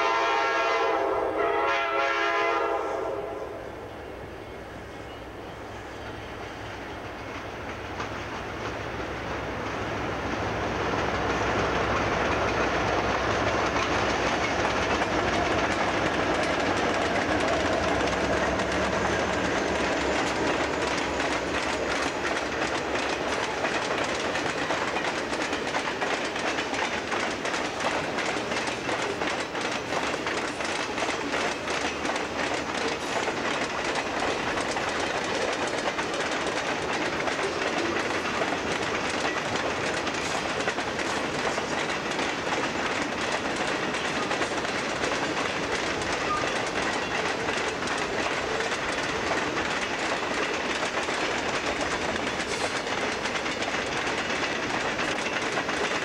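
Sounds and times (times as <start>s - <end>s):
train wheels clickety-clack: 0.0s - 3.2s, 4.0s - 56.0s
locomotive engines droning: 3.2s - 56.0s.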